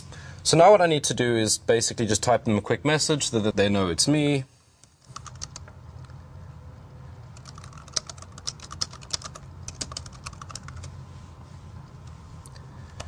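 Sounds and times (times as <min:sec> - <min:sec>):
typing on computer keyboard: 0:05.1 - 0:05.7, 0:07.4 - 0:10.9.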